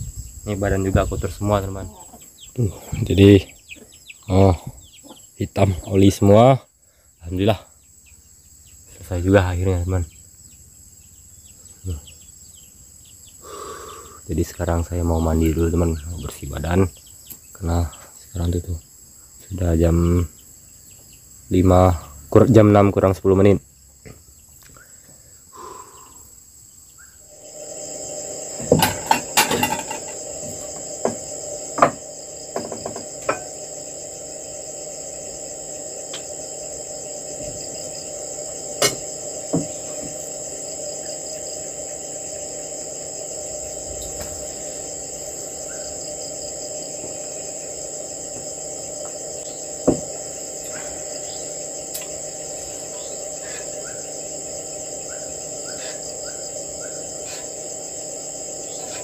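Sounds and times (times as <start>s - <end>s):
insect chorus: 0.0s - 59.0s.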